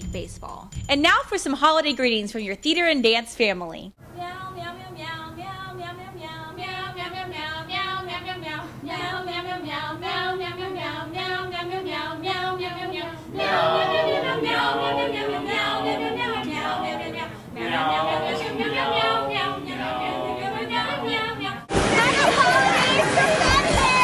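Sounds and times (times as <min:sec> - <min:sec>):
group singing a cappella: 0:04.2 - 0:23.2.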